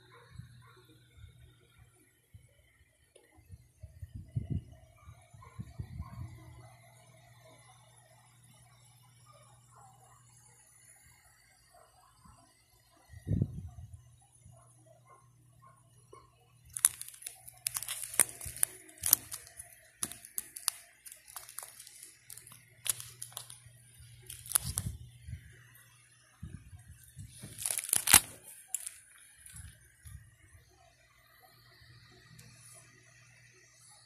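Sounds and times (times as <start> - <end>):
plastic pockets crinkling: 16.7 - 25.0, 27.0 - 29.8.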